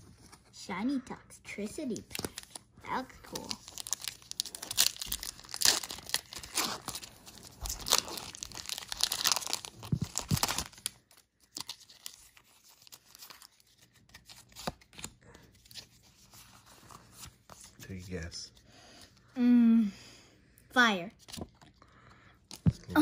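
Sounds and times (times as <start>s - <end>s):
foil wrapper tearing and crinkling: 3.3s - 14.8s
cards being handled: 3.3s - 18.5s.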